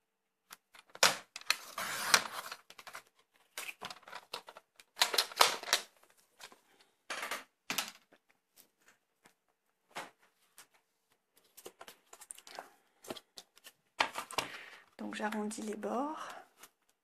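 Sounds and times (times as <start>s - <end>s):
paper trimmer blade scraping: 1.6s - 2.5s
clicks and rustles: 2.4s - 15.4s.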